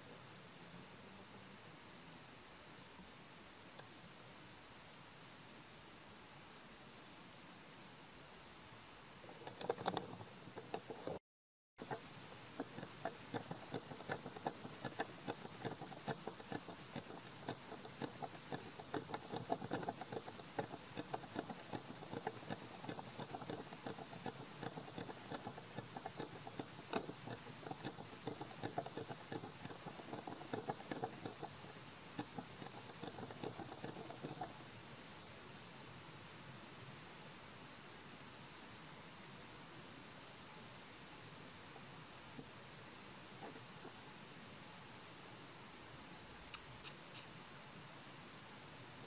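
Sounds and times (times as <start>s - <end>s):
faint hiss: 0.0s - 11.2s, 11.8s - 49.0s
monkey chewing: 9.3s - 11.2s, 11.8s - 34.6s.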